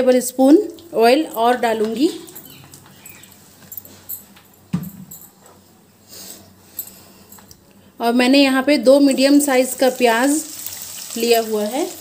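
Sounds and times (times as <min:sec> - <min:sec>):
oil sizzling in a wok: 0:09.5 - 0:12.0.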